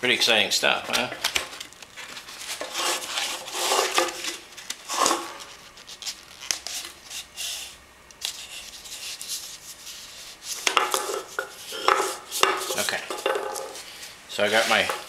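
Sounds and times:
paper rustling and scraping on can: 0:02.0 - 0:07.6, 0:13.7 - 0:15.0.

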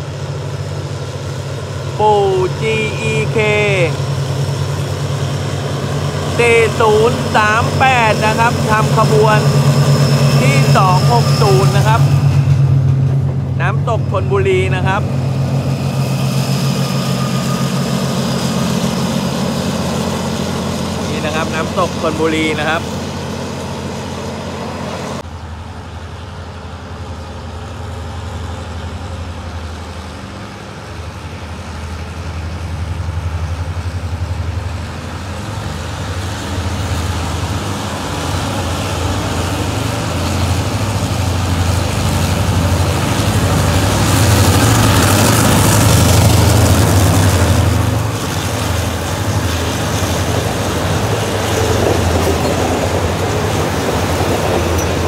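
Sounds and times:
locomotive engine humming: 0:00.0 - 0:55.0
wheels clattering on rails: 0:33.6 - 0:55.0.

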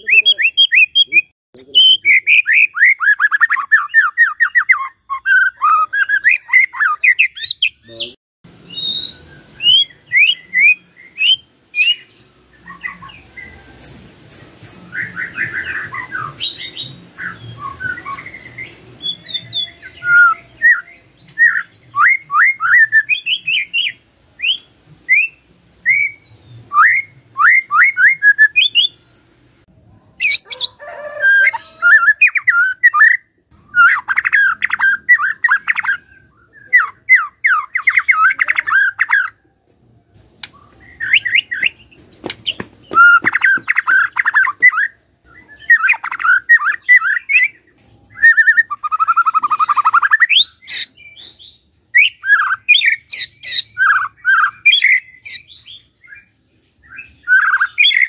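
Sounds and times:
songbird singing and warbling: 0:00.0 - 0:39.5, 0:40.4 - 0:58.0.

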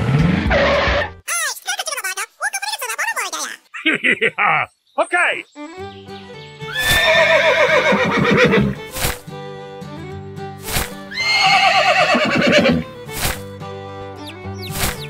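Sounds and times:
background music: 0:05.5 - 0:15.0
horse whinnying: 0:06.7 - 0:08.8, 0:11.1 - 0:12.9.

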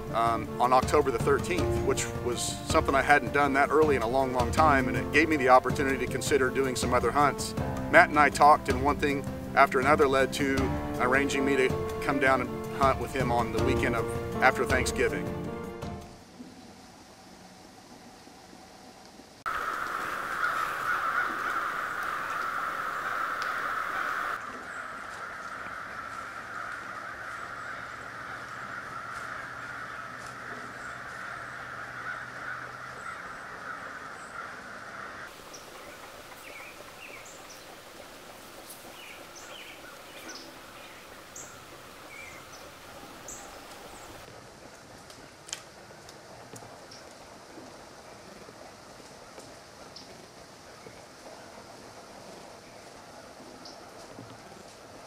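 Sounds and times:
flock of birds chattering: 0:19.5 - 0:44.3
small birds chirping: 0:35.3 - 0:44.3.

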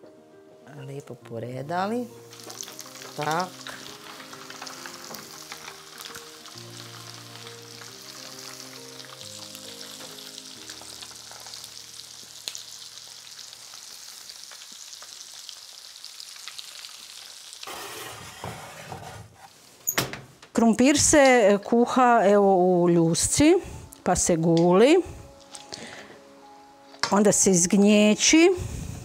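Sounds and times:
fish frying in lard: 0:02.2 - 0:18.1
soft tune: 0:21.3 - 0:29.0.

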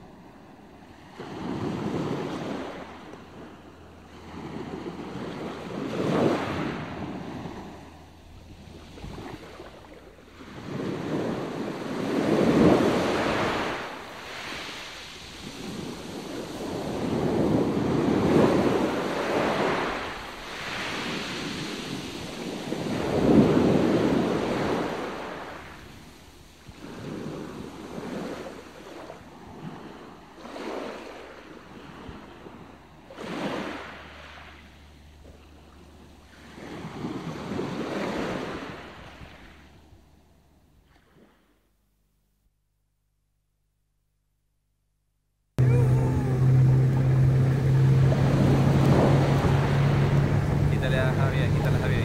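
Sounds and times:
sea noise: 0:00.0 - 0:41.6, 0:45.6 - 0:52.0
wind on microphone: 0:04.2 - 0:30.2, 0:45.6 - 0:52.0.

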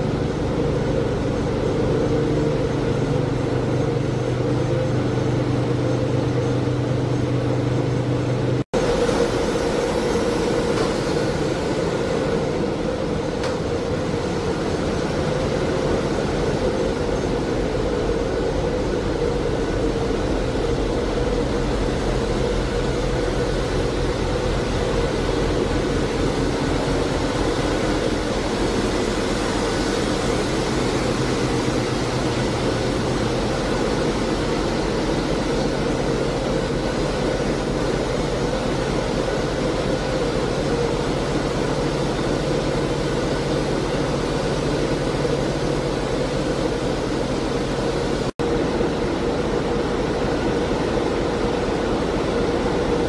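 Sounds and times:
engine room machinery drone: 0:00.0 - 0:53.0.

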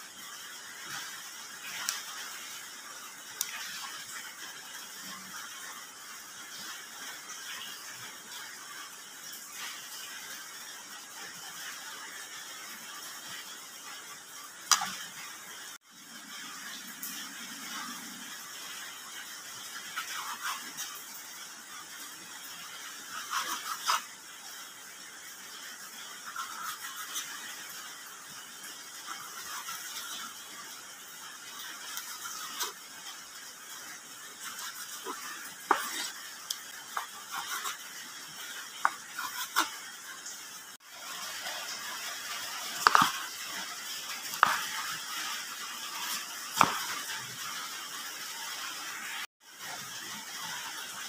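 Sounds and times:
knife slicing through fish: 0:23.0 - 0:24.1, 0:34.4 - 0:36.2, 0:36.9 - 0:37.8, 0:38.4 - 0:39.8, 0:45.9 - 0:47.1.

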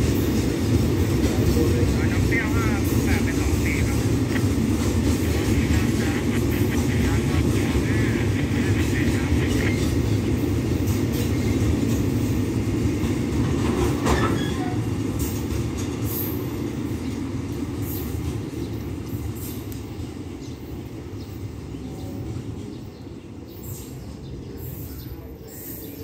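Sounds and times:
train wheels rumbling on rails: 0:00.0 - 0:26.0
faint rail clicks: 0:01.2 - 0:10.2.

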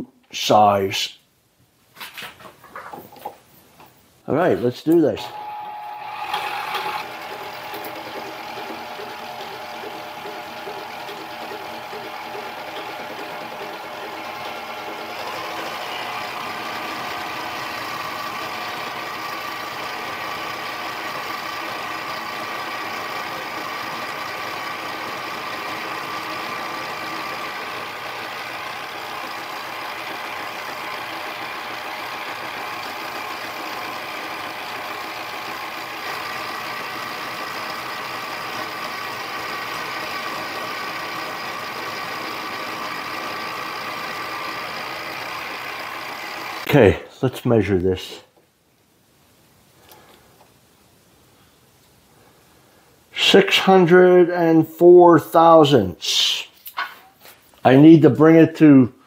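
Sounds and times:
lathe motor whining: 0:05.2 - 0:46.7.

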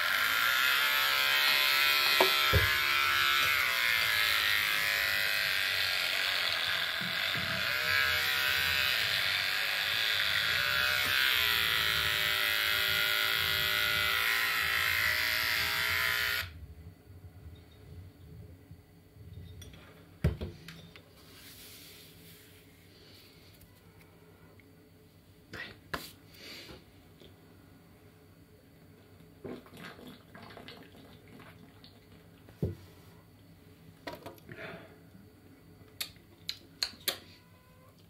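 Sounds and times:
electric hair clippers buzzing: 0:00.0 - 0:16.6.

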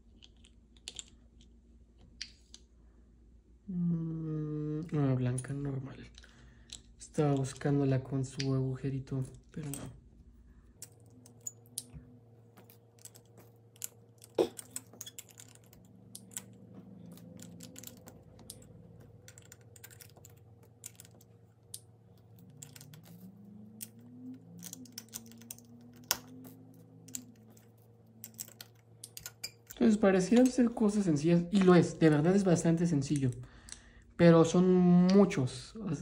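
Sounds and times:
faint steady hum: 0:00.0 - 0:36.0
plastic toy bricks clicking: 0:00.1 - 0:01.5, 0:12.7 - 0:30.6.

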